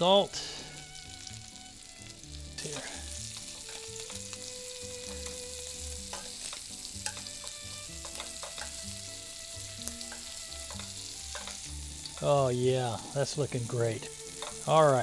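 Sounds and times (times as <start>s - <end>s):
shrimp sizzling in a pan: 0.0s - 15.0s
metal tongs clicking on pan: 2.6s - 4.5s, 6.1s - 8.8s, 9.9s - 12.3s, 14.3s - 14.8s.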